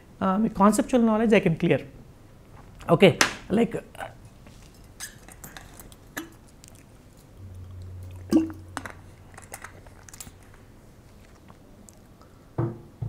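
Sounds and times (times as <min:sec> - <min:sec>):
man swallowing: 0:07.4 - 0:09.4.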